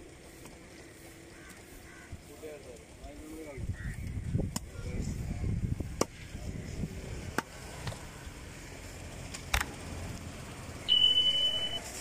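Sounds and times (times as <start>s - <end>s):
high beep: 10.9s - 11.9s.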